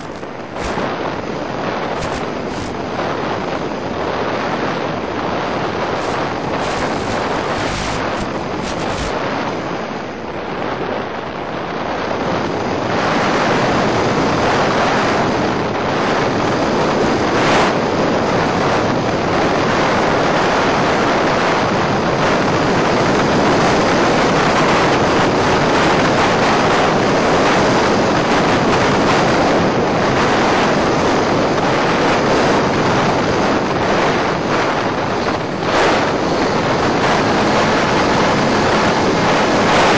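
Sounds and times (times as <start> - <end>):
brief crackles: 0.0 - 0.9, 1.9 - 2.8, 5.9 - 9.2
wind rushing: 0.0 - 17.8, 18.4 - 39.9.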